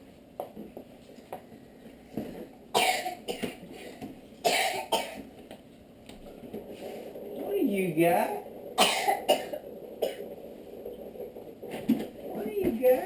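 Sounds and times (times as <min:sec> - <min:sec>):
person coughing: 0:02.8 - 0:03.6, 0:04.4 - 0:05.2, 0:08.8 - 0:10.3.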